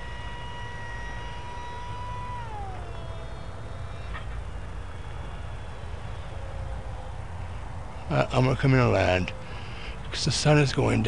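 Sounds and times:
electric motor whining: 0.0 - 7.2.

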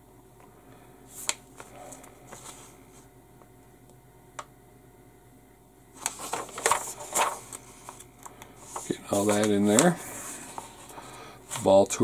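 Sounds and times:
paper rustling: 1.1 - 3.0, 6.0 - 12.0.

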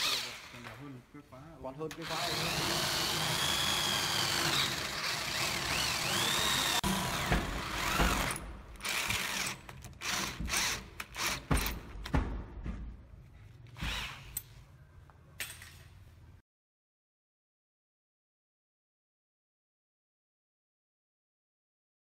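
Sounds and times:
electric drill boring into wood: 0.0 - 0.6, 2.0 - 11.7
sharp knocks: 11.4 - 12.9.

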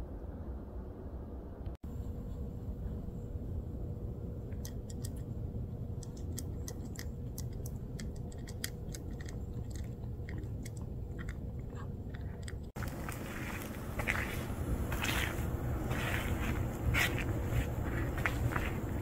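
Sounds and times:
low background rumble: 0.0 - 19.0
cat crunching dry kibble: 6.2 - 15.4.

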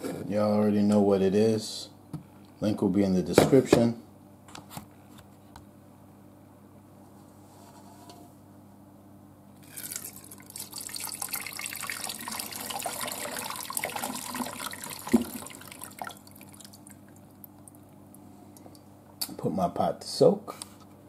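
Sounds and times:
liquid pouring through strainer: 9.6 - 17.8.

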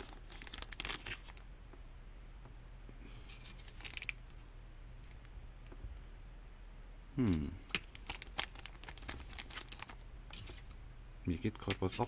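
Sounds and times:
plastic bag crinkling: 0.0 - 1.4, 3.2 - 4.2, 7.7 - 10.8.

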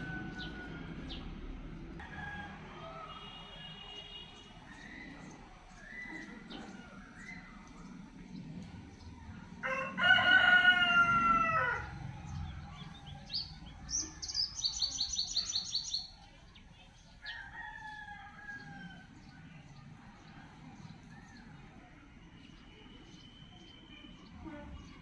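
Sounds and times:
rooster crowing: 0.0 - 1.3, 2.0 - 3.6, 9.6 - 15.9, 17.2 - 19.2
small bird chirping rapidly: 12.8 - 16.2.

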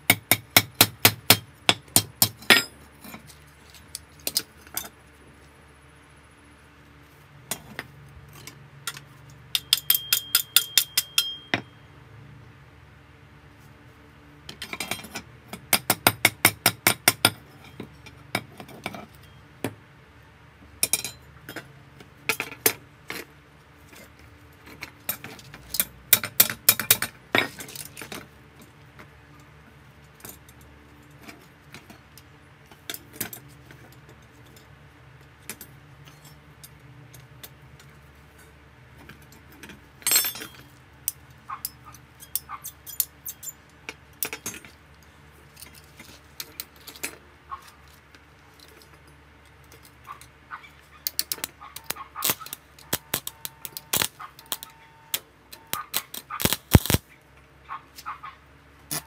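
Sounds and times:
metallic tapping on steel rods: 8.9 - 11.8, 51.1 - 57.0.

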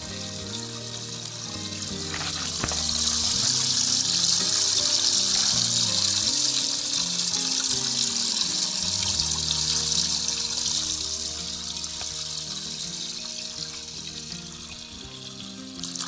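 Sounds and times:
aerator spraying water: 0.0 - 16.0
background music with bass: 0.0 - 16.0.

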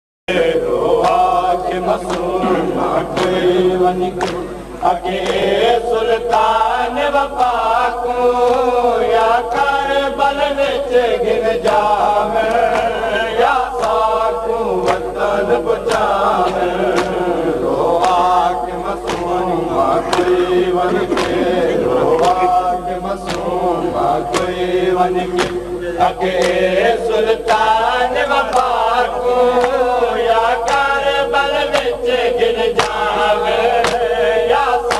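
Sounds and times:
crowd of men chanting: 0.3 - 34.9
man singing a lament through microphone: 0.3 - 34.9
hands slapping chests: 2.0 - 2.4, 4.2 - 4.5, 14.8 - 15.1, 15.9 - 17.2, 19.0 - 19.4, 20.1 - 22.5, 23.2 - 23.6, 24.3 - 24.6, 25.4 - 25.7, 26.4 - 26.6, 32.8 - 33.0, 33.8 - 34.0.

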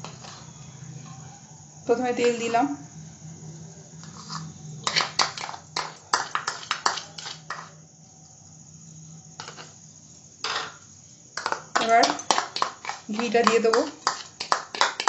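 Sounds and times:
metal utensils clinking: 11.4 - 15.0.

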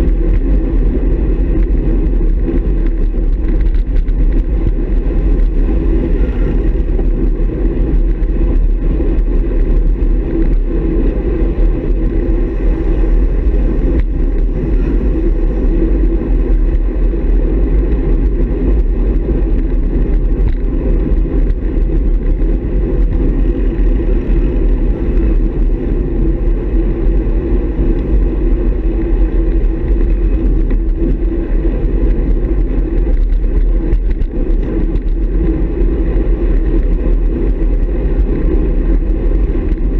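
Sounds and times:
road noise deep rumble: 0.0 - 39.9
wind on microphone: 0.0 - 39.9.

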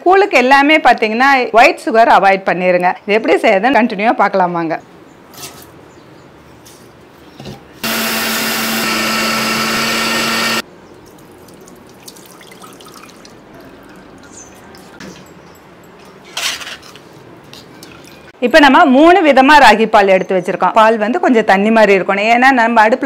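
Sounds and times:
mixer grinder running: 7.8 - 10.6
liquid poured through steel sieve: 11.1 - 13.6.

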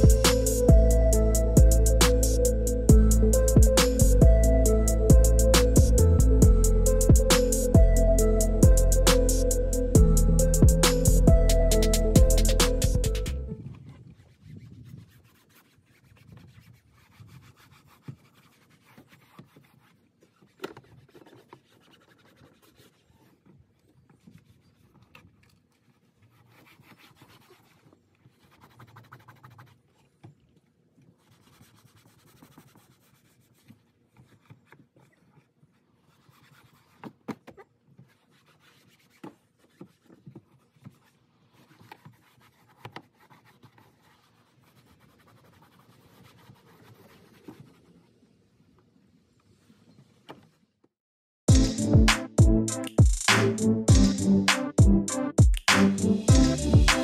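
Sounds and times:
foam pad rubbing on plastic: 14.0 - 23.5, 25.8 - 30.2, 31.1 - 37.3, 37.9 - 48.4.

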